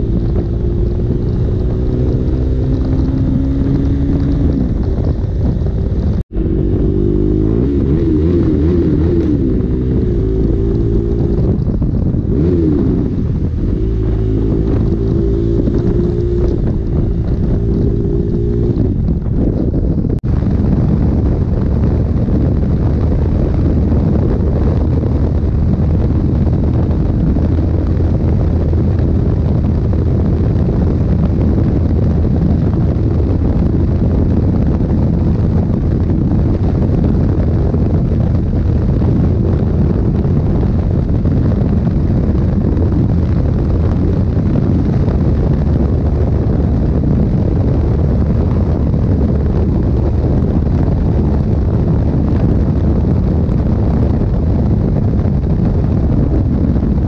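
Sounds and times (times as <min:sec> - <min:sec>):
motorcycle engine cruising: 0:00.0 - 0:57.0
wind buffeting microphone: 0:00.0 - 0:57.0.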